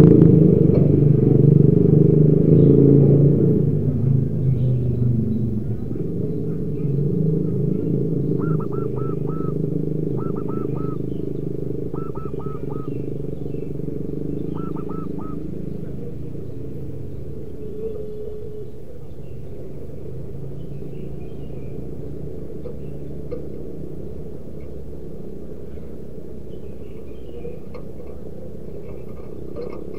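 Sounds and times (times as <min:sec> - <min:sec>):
low rumble: 0:00.0 - 0:27.0
dove cooing: 0:05.5 - 0:21.2, 0:27.0 - 0:29.9.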